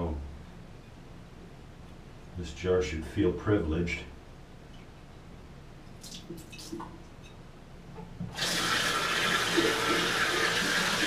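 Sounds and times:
tap water running: 0:08.2 - 0:11.0.

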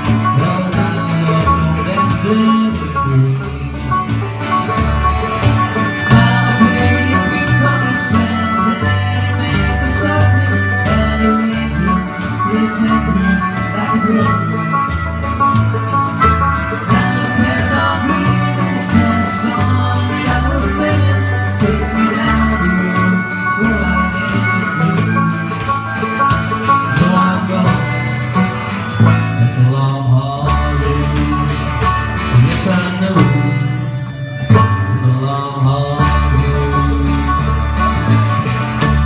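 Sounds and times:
drum kit: 0:00.0 - 0:29.4
banjo: 0:00.0 - 0:39.0
bass: 0:00.0 - 0:39.0
fiddle: 0:00.0 - 0:39.0
guitars: 0:00.0 - 0:39.0
person singing: 0:05.6 - 0:15.0, 0:16.7 - 0:25.6.

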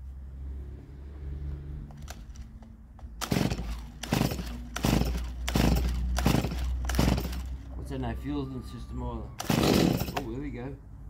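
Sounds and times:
recoil starter cord pulls: 0:03.2 - 0:07.6, 0:09.4 - 0:10.3
chainsaw engine turning over: 0:03.2 - 0:07.7, 0:09.4 - 0:10.4.

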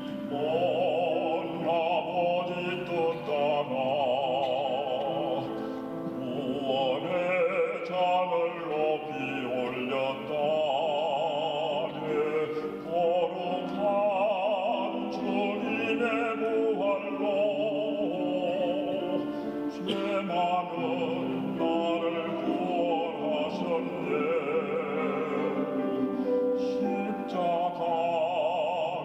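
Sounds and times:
operatic voice singing: 0:00.0 - 0:29.0
steady musical accompaniment: 0:00.0 - 0:29.0.

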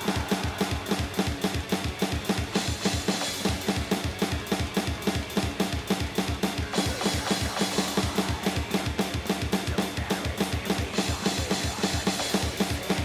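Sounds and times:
kick drum and snare beat: 0:00.0 - 0:13.0
metal band instruments: 0:00.0 - 0:13.0.

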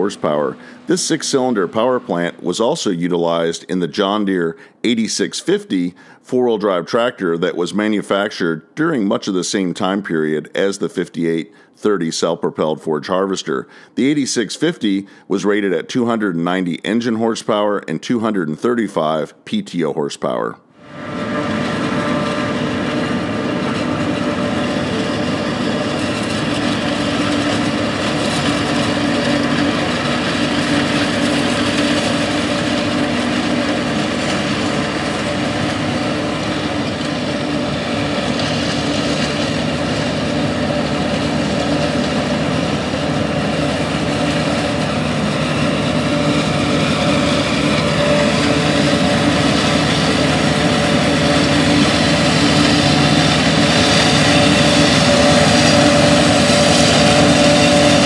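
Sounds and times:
tractor engine: 0:00.0 - 0:19.2, 0:20.8 - 0:58.0
forage harvester chopping: 0:21.0 - 0:58.0.

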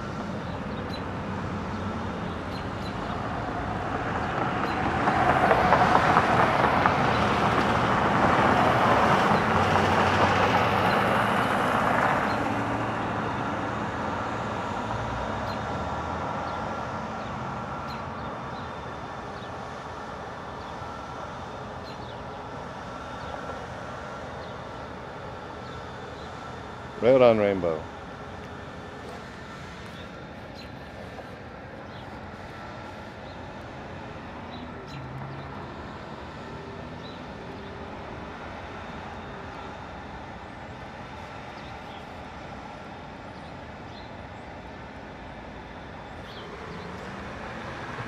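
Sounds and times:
road traffic passing: 0:00.0 - 0:48.0.

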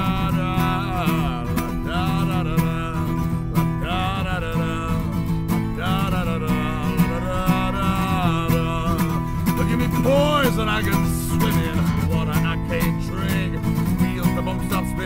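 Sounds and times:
acoustic guitar strumming: 0:00.0 - 0:15.0
man singing wordless melody: 0:00.0 - 0:15.0.

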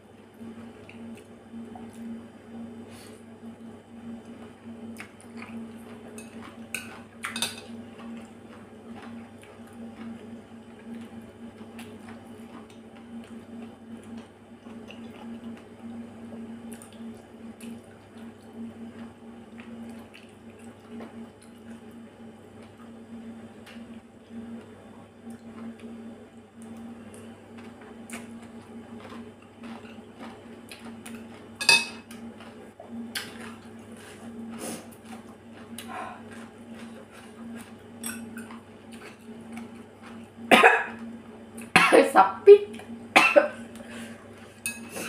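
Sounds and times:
steady low hum: 0:00.0 - 0:45.0
chewing mouth sounds: 0:04.9 - 0:07.4, 0:26.6 - 0:40.3.

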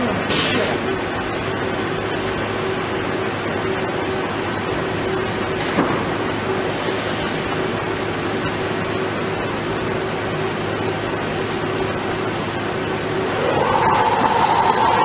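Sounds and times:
drill spindle whirring: 0:13.2 - 0:15.0.

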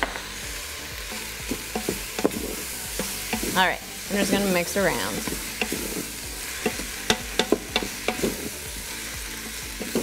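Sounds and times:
food sizzling in a pot: 0:00.0 - 0:10.0
wooden spoon scraping a pot: 0:01.2 - 0:08.8, 0:09.5 - 0:10.0.

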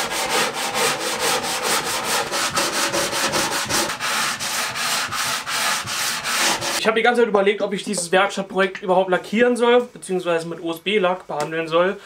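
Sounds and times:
sanding block rubbing on wood: 0:00.0 - 0:06.8.

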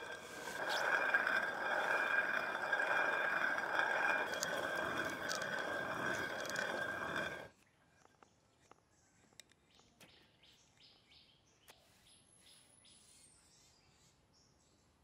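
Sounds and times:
stone quern grinding grain: 0:00.0 - 0:07.5.

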